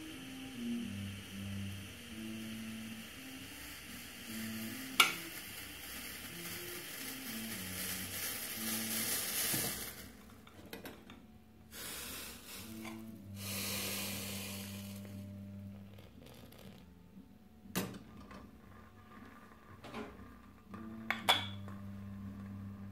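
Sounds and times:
coffee pouring into a cup: 0.0 - 10.4
gas burner hissing: 0.0 - 10.4, 11.7 - 15.9
coffee simmering in a pot: 0.0 - 10.9, 11.8 - 16.9, 18.5 - 22.9.

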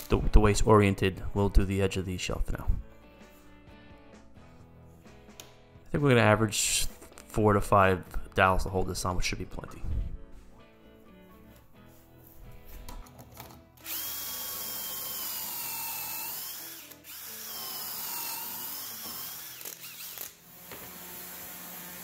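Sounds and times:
cordless drill boring wood: 13.8 - 22.0.

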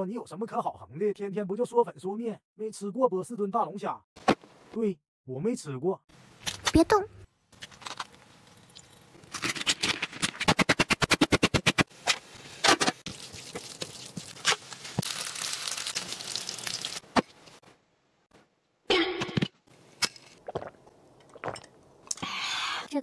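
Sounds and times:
sizzling in a frying pan: 12.3 - 17.0.

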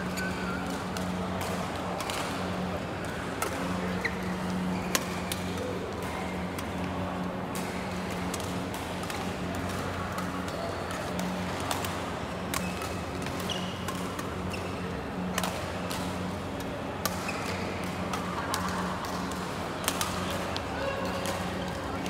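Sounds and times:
shoes squeaking on court: 0.0 - 0.6, 13.4 - 14.8
reverberant sports hall noise: 0.0 - 22.0
rackets hitting shuttlecock: 15.2 - 21.8.

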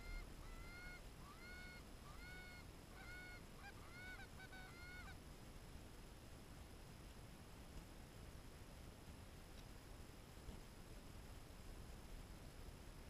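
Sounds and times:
geese honking: 0.0 - 5.2.

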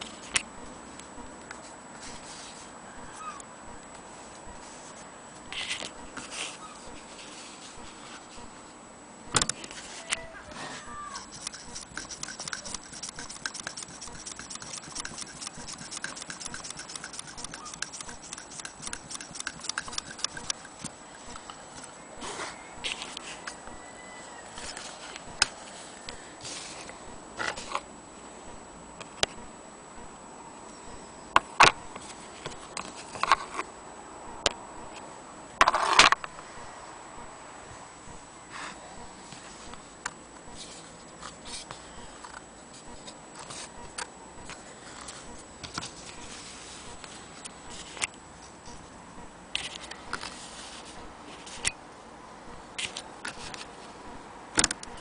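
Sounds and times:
rustling scrape: 1.6 - 3.3, 4.1 - 8.5, 9.6 - 21.3, 24.5 - 27.8, 44.8 - 48.6, 49.6 - 51.7
sewing machine rapid clicking: 11.2 - 20.9.

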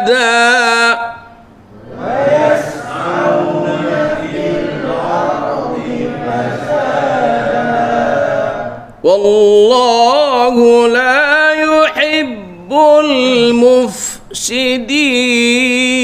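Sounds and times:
men chanting in unison: 1.8 - 16.0.

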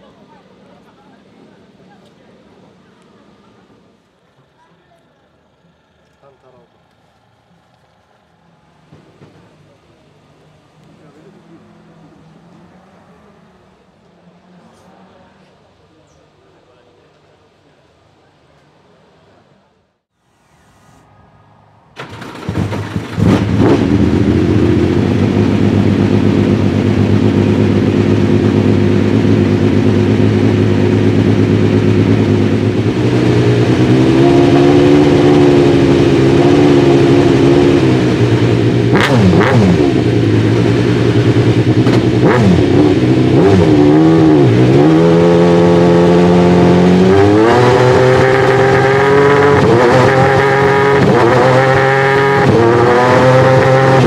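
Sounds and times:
engine throttle blips: 20.2 - 54.0
race car engine idling: 39.8 - 43.3.

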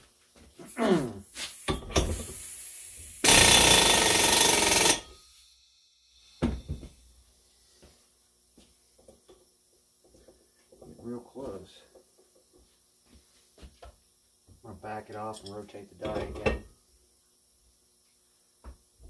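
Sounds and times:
pneumatic tool running: 1.4 - 5.1.

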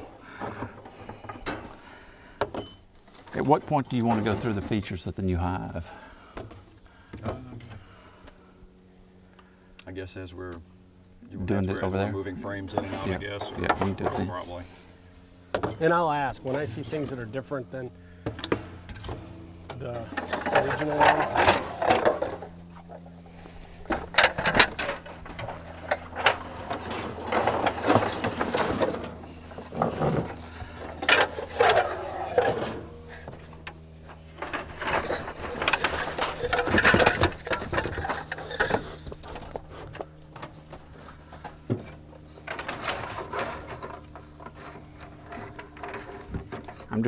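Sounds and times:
low hum: 5.8 - 47.0
wooden frames knocking and clattering: 15.5 - 16.8, 18.2 - 23.1, 23.8 - 47.0.

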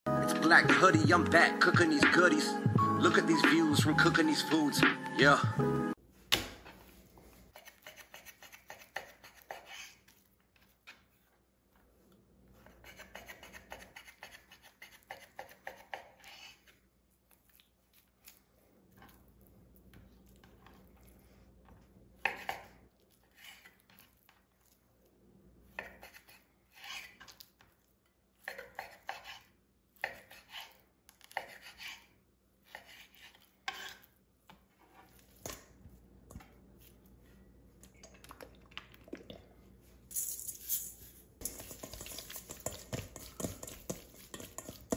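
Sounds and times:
knife cutting on board: 7.6 - 10.7, 28.4 - 35.7.

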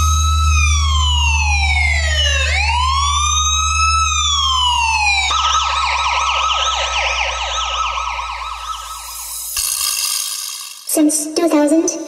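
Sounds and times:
police siren wailing and yelping: 0.0 - 9.6.

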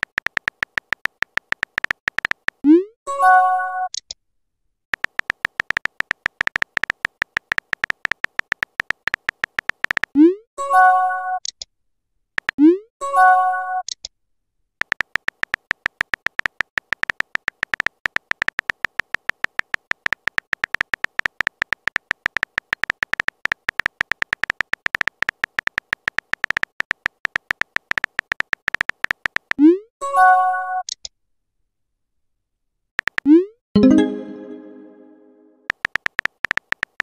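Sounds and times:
rapid keyboard typing clicks: 0.0 - 2.6, 4.9 - 10.2, 12.4 - 12.6, 14.8 - 29.6, 33.0 - 33.4, 35.7 - 37.0
rising pop and chime: 33.8 - 35.5.

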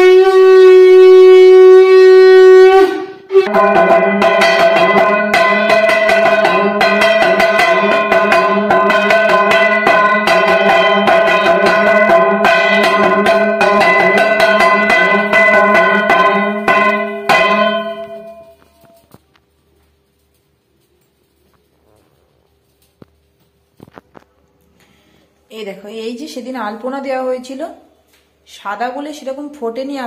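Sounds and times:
bell-metal plate gong beaten rapidly: 3.5 - 18.9.

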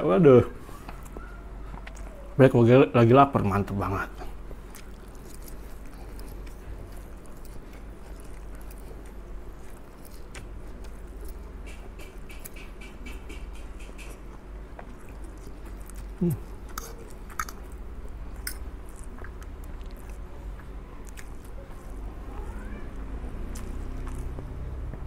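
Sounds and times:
man chewing and slurping noodles: 4.1 - 25.0
wet mouth clicks: 9.8 - 17.8, 18.4 - 21.5.

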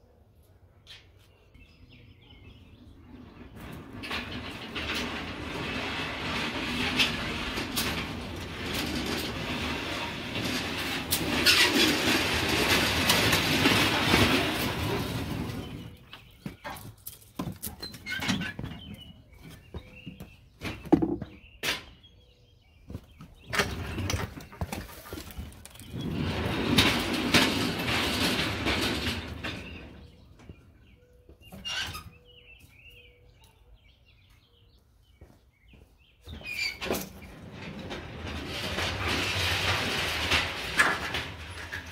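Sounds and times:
rail car wheels clattering on rails: 3.5 - 16.0, 23.4 - 30.2.

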